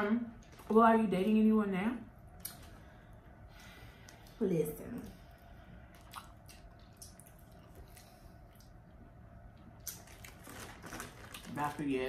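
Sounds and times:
chewing: 5.9s - 8.8s.

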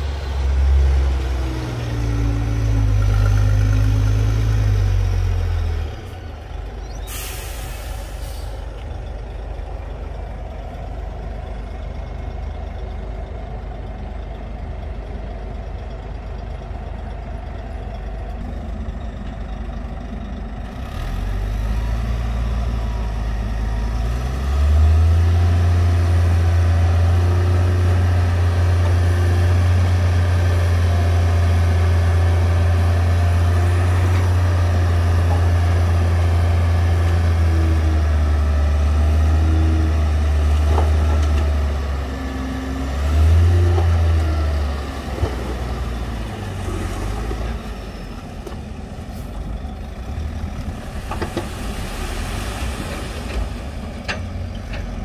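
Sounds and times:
diesel truck engine revving: 0.0s - 8.8s, 20.6s - 55.0s.

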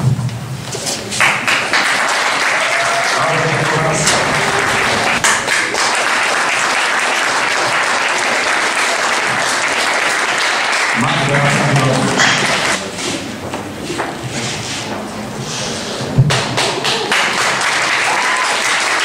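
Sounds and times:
audience clapping: 1.1s - 12.9s, 16.3s - 19.0s.

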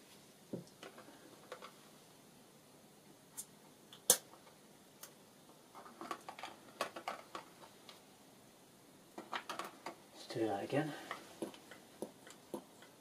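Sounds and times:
small clicks and rattles: 5.7s - 7.7s, 9.2s - 10.0s.

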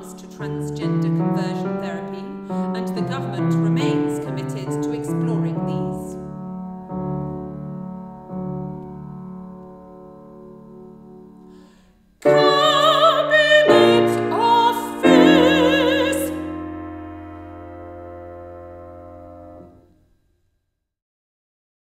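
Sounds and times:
piano chords: 0.0s - 19.9s
woman singing with vibrato: 12.2s - 16.6s.

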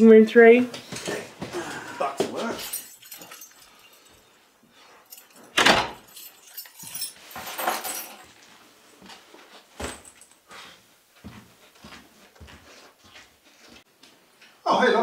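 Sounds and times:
keys jangling: 2.4s - 8.5s.

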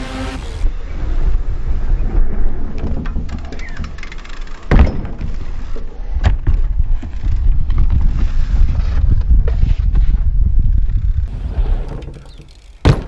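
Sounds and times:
bike landing on wooden ramp: 4.6s - 10.3s, 11.3s - 13.0s.

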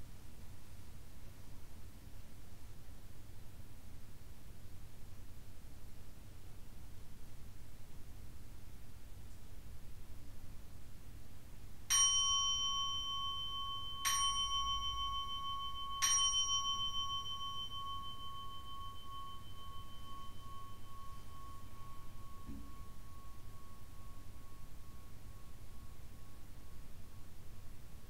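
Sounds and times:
bowl bell ringing: 11.9s - 27.8s.

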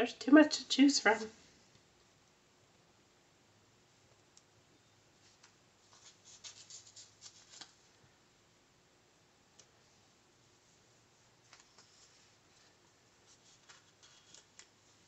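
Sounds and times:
paper rustling and crackling: 5.3s - 7.9s, 11.4s - 15.0s.

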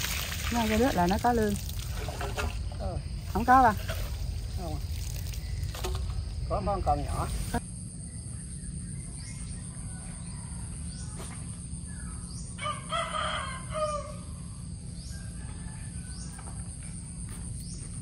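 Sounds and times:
high-pitched insect trill: 0.0s - 18.0s
rooster crowing: 9.7s - 11.2s, 12.6s - 16.6s.

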